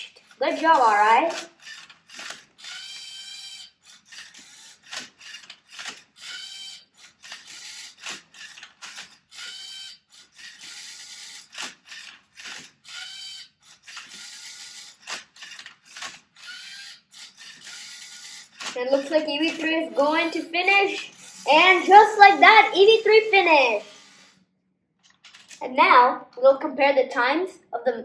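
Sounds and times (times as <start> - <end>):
sharp clicks: 0.0 - 9.6, 13.8 - 22.0
robot motors whining: 0.1 - 24.4.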